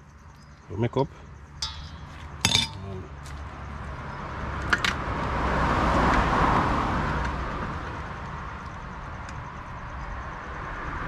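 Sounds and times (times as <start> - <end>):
vehicle passing: 2.1 - 8.5.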